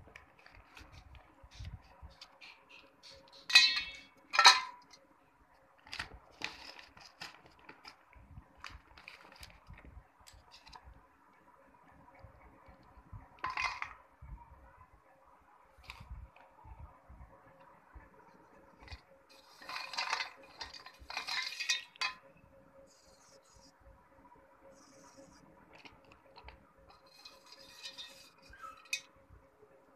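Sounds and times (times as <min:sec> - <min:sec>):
steel dishware clinking: 0:03.5 - 0:04.8.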